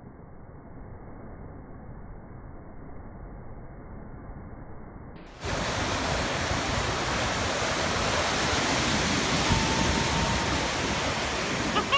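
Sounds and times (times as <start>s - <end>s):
faint steady tone: 0.0s - 11.9s
whitewater rushing from breaking wave: 5.3s - 11.9s.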